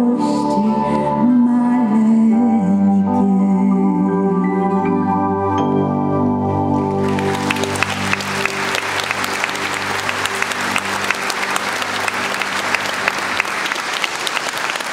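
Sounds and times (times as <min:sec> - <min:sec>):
held keyboard chord: 0:00.6 - 0:14.9
audience applauding: 0:07.0 - 0:14.9.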